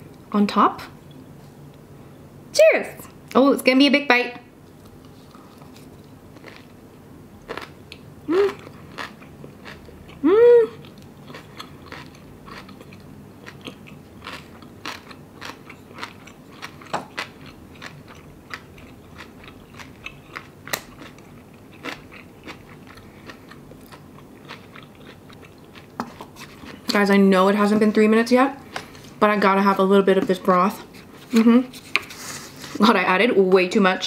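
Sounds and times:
chewing with wet clicks and crunches: 7.4s - 10.2s, 10.8s - 27.0s
humming with mouth full: 8.2s - 8.8s, 10.1s - 11.0s.

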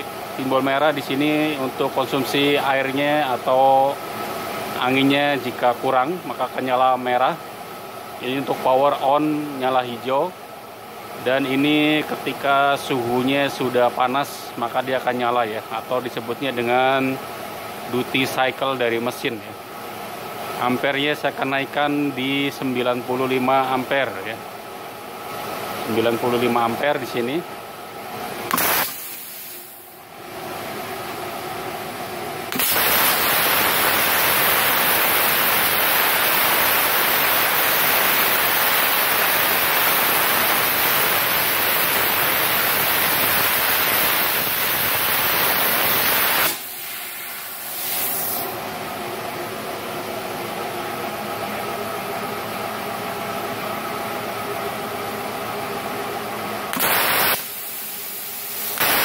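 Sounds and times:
plasma arc hissing: 28.5s - 29.9s, 32.5s - 48.6s, 56.7s - 59.0s.

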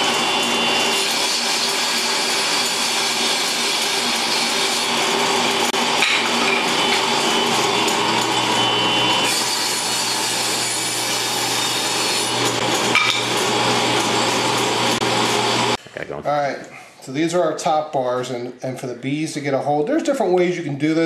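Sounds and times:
table saw cutting wood: 0.0s - 15.8s.

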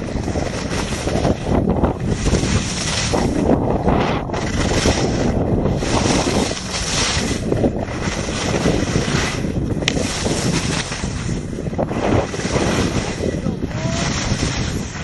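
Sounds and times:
wind rushing over microphone: 0.0s - 15.0s
skis hissing and scraping snow: 2.2s - 4.0s, 9.9s - 11.3s, 11.9s - 13.2s.

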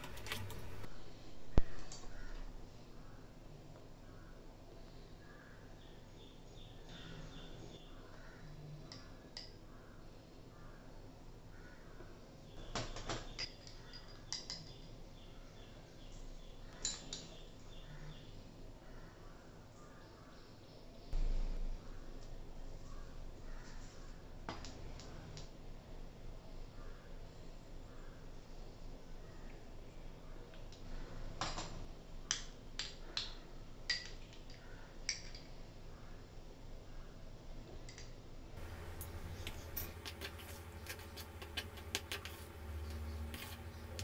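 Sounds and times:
spoon clinking glass bowls: 38.6s - 42.4s.

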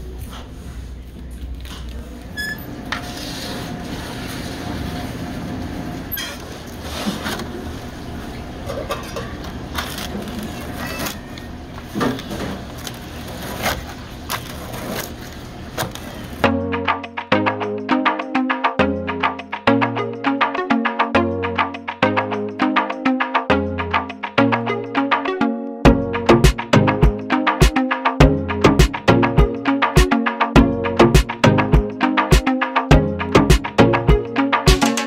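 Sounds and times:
restaurant background hum: 0.0s - 16.6s
pizza cutter crunching through crust: 12.6s - 16.4s.

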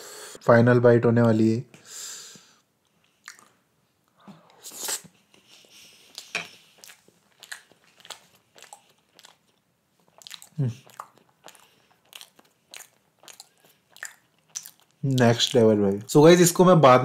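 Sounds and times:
wet mouth clicks: 3.1s - 3.6s, 6.1s - 15.7s
person biting and chewing food: 6.0s - 15.7s.

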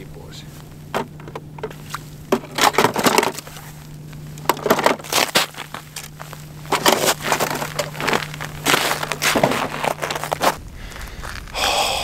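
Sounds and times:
crunching and scraping on snowy ice: 1.7s - 11.6s
boots shifting in snow: 5.0s - 11.5s.

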